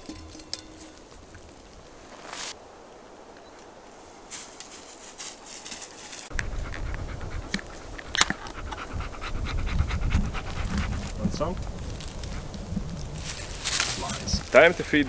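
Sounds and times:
small rustles and clicks: 3.4s - 8.8s, 10.2s - 15.0s
dog panting: 6.3s - 12.5s.

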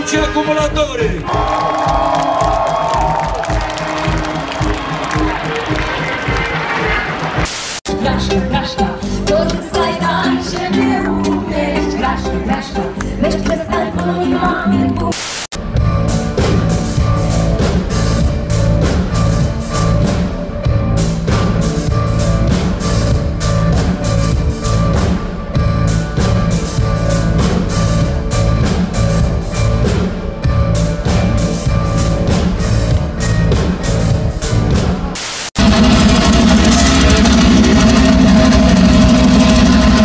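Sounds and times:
steady drum beat: 0.0s - 7.8s, 15.6s - 40.0s
live band playing: 0.0s - 40.0s
electric guitar: 35.6s - 40.0s.

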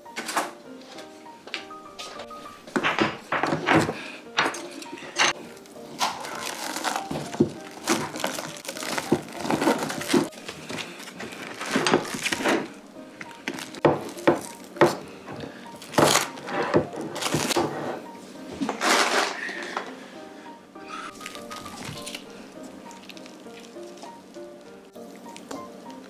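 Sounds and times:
light background music: 0.0s - 26.0s
plastic cling wrap crinkling: 4.6s - 17.7s, 18.6s - 19.5s, 20.9s - 26.0s.

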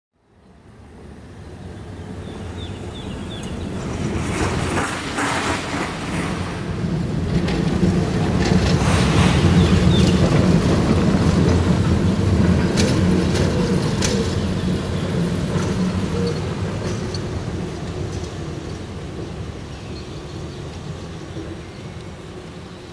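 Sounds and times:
tram passing on rails: 0.2s - 22.9s.

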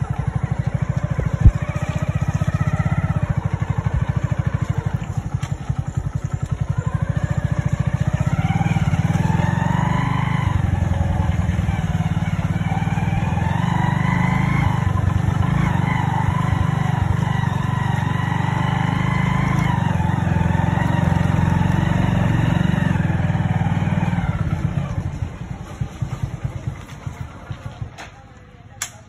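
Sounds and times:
motorcycle engine running: 0.0s - 29.0s
sharp click: 28.8s - 29.0s.

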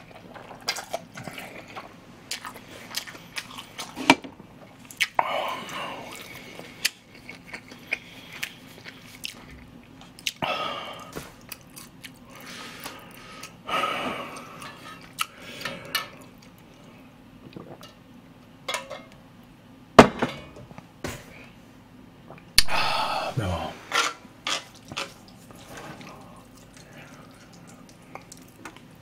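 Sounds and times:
person chewing noodles: 0.0s - 17.9s, 24.7s - 29.0s
breathy rushes: 22.6s - 23.9s.

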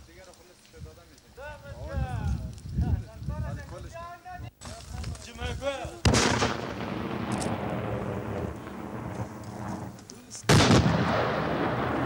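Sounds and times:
loud rumbling booms: 6.0s - 12.0s.

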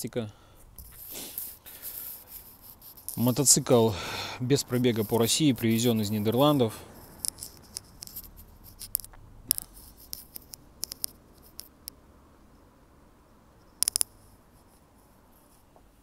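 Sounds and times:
light clicks and ticks: 7.0s - 12.0s
sharp clicks: 7.0s - 12.0s, 13.8s - 14.2s.

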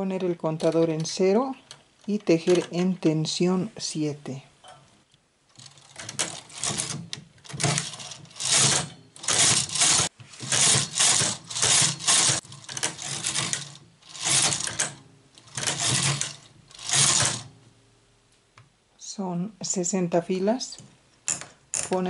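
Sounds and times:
knitting machine carriage clatter: 0.4s - 3.0s, 5.5s - 17.5s.

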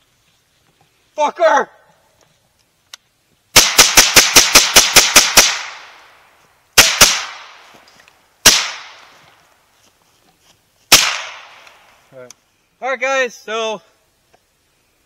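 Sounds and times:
rifle firing rapidly: 3.6s - 5.8s, 6.8s - 7.5s, 8.4s - 8.9s.

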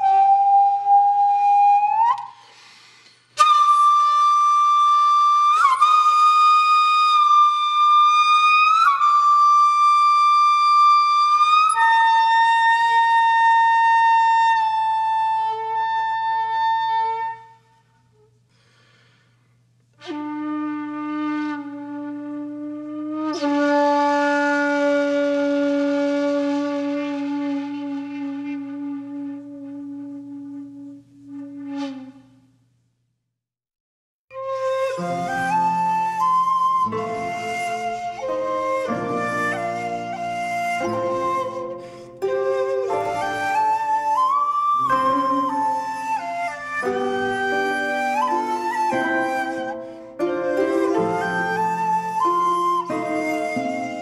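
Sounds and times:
breathy flute long notes: 0.0s - 19.4s, 34.3s - 54.0s.

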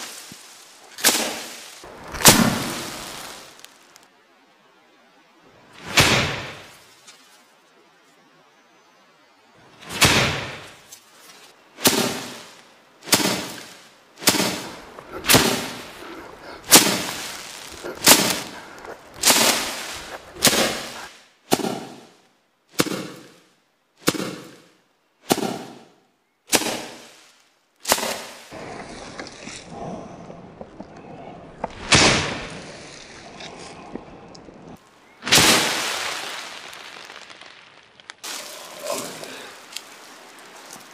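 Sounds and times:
pole whacking dry stalks: 0.0s - 4.0s, 9.9s - 22.0s, 26.5s - 29.7s, 31.6s - 40.9s
pods crackling rustle: 0.0s - 4.1s, 14.6s - 21.1s, 35.8s - 40.9s.

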